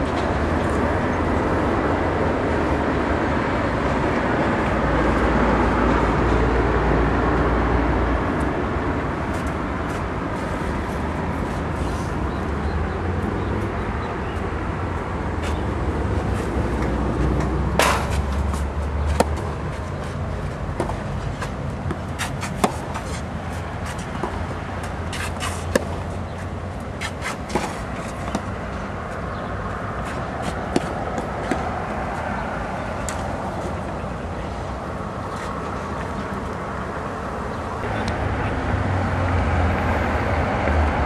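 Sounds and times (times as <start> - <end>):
tennis ball struck by racket: 16.8 - 20.2, 20.8 - 24.4, 25.1 - 26.1.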